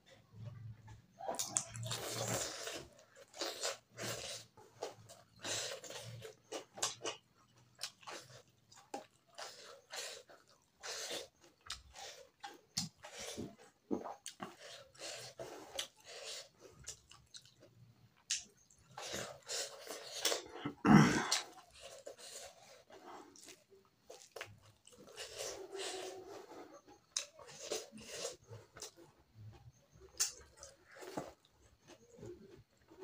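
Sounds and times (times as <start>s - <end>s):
wet chewing and lip-smacking: 0.4s - 20.5s, 21.3s - 33.0s.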